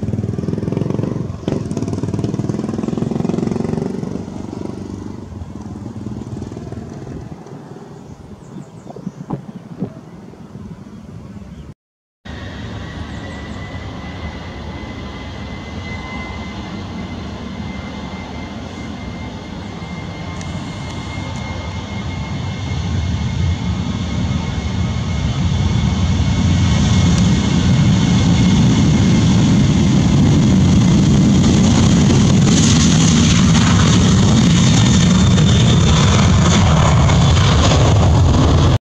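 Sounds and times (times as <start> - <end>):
jet engines running: 0.0 - 11.6, 12.3 - 38.8.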